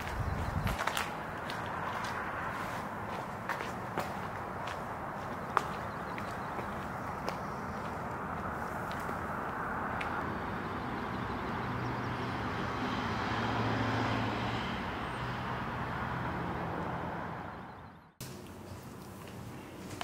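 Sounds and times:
running footsteps on asphalt: 0.0s - 10.2s.

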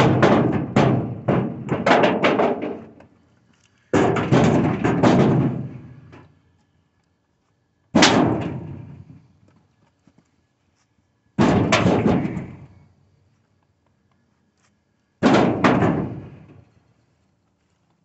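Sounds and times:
logs landing in truck bed: 0.0s - 3.1s, 3.9s - 6.2s, 7.9s - 9.1s, 11.4s - 12.6s, 15.2s - 16.6s.

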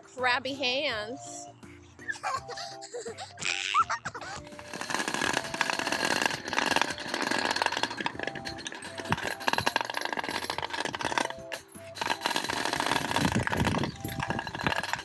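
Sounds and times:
plastic pins rattling on chain-link fence: 4.4s - 15.0s.

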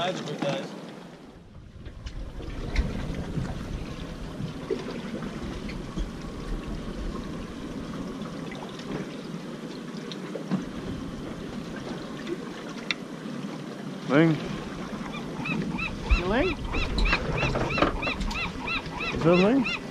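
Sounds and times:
water lapping against boat hull: 0.0s - 19.9s
low rumble: 1.3s - 8.4s, 15.7s - 18.8s.

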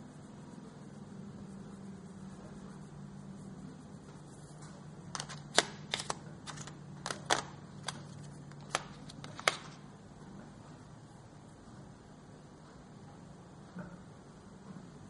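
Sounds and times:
steady low hum: 0.0s - 15.0s
crayons clicking on table: 5.1s - 9.8s.

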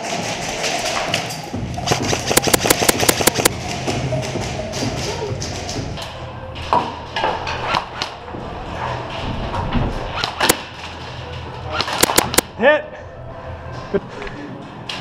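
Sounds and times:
airsoft gun shots: 1.9s - 3.5s, 11.9s - 12.5s.

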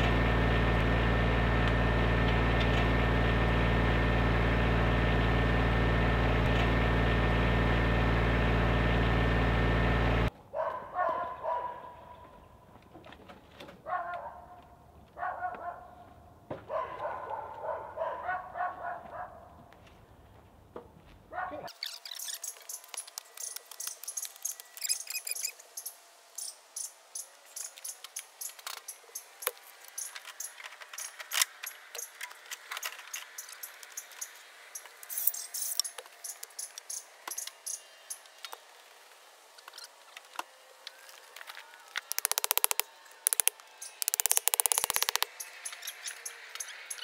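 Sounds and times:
hand tool clicks and metal taps: 42.0s - 47.0s
rapid rattling bursts: 42.1s - 47.0s.

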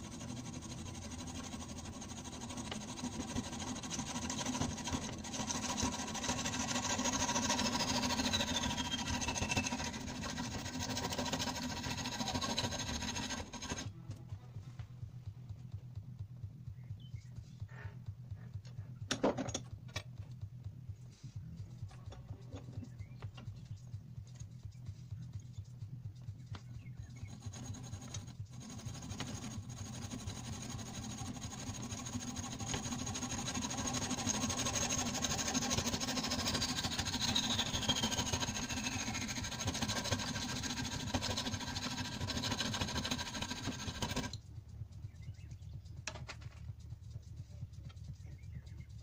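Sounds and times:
hacksaw sawing through brass: 0.0s - 13.9s, 27.1s - 44.4s.

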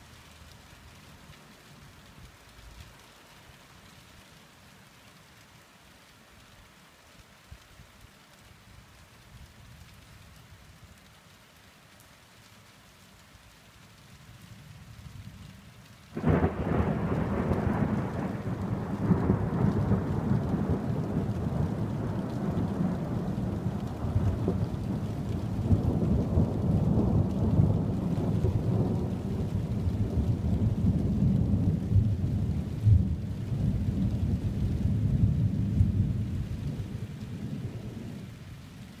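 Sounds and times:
steady rain: 0.0s - 39.0s
thunder crack and rumble: 16.2s - 38.2s.

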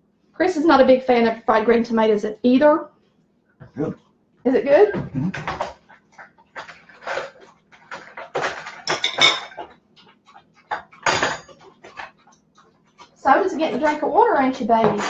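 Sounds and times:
fork clinking and scraping on plate: 6.6s - 12.3s.

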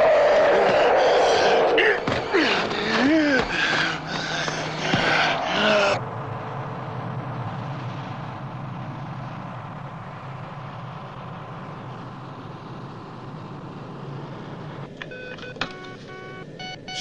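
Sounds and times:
low hum: 0.0s - 15.2s.

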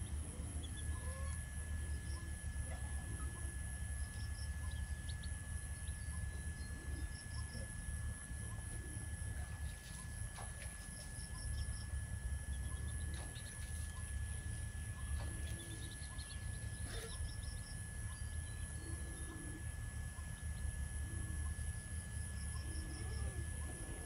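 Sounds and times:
steady low rumble: 0.0s - 24.0s
hen clucking softly: 15.0s - 17.4s.

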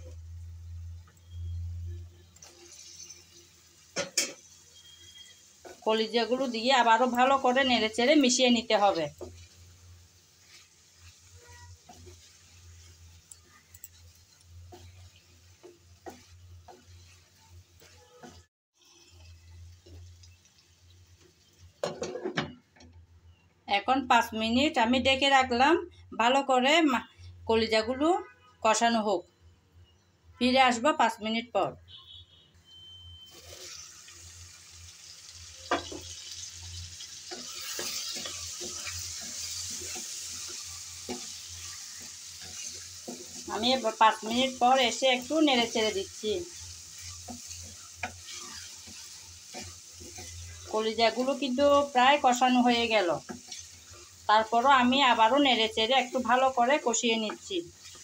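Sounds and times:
faint sizzle: 0.0s - 58.0s
wooden spatula scraping metal pan: 10.4s - 20.0s, 33.2s - 34.0s, 37.1s - 45.3s, 46.4s - 51.4s.

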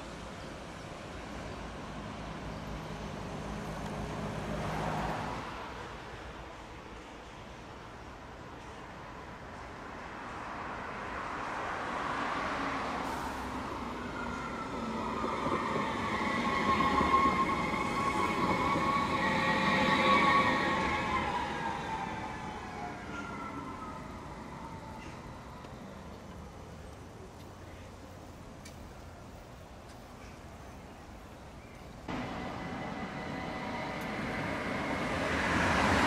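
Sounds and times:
tram wheels rolling on rails: 13.4s - 27.5s, 31.8s - 36.0s
electric tram drive whine: 32.1s - 36.0s.

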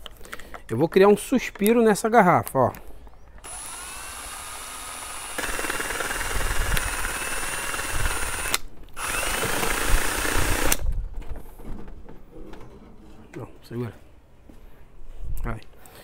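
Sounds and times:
cordless drill motor whine: 3.4s - 10.8s.

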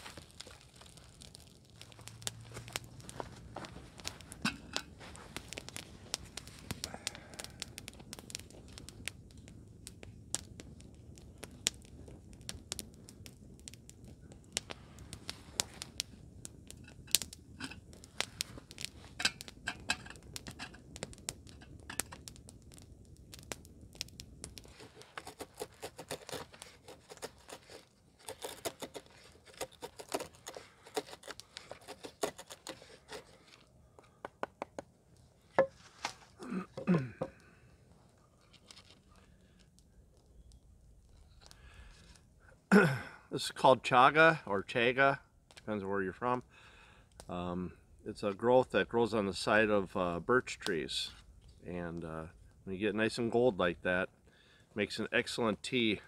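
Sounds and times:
dry material crackling and tearing: 0.0s - 12.6s, 23.3s - 33.7s, 38.4s - 39.8s.

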